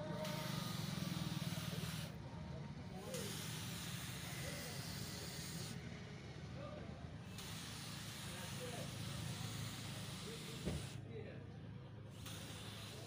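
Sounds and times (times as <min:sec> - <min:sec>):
paint spray gun hissing: 0:00.0 - 0:02.2, 0:03.0 - 0:05.8, 0:07.3 - 0:11.0, 0:12.1 - 0:13.0.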